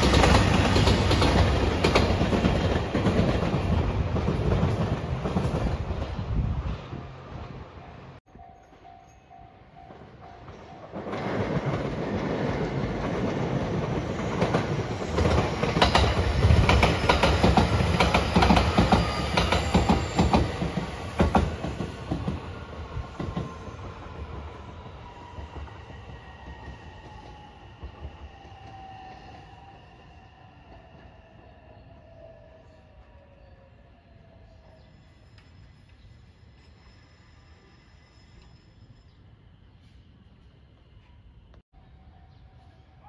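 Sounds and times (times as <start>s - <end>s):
train wheels clacking: 0.0s - 6.2s, 8.8s - 28.7s.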